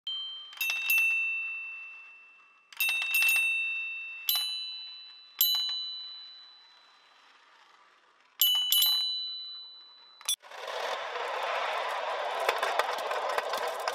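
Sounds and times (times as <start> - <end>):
marbles striking metal chime: 0.1 - 7.4, 8.4 - 10.4
marbles rolling rumble: 6.8 - 8.4, 10.4 - 13.9.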